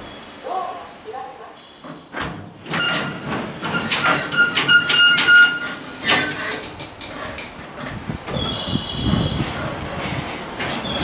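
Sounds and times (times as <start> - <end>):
train couplers clanking: 1.8 - 11.0
high metallic squeal: 2.7 - 6.6.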